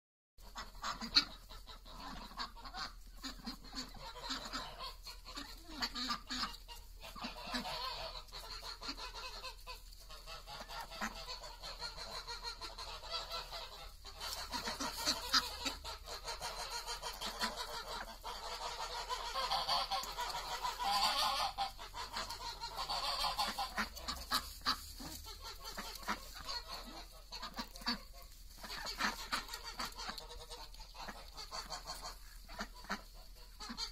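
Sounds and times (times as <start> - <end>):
ducks honking quacks: 0.4 - 33.9.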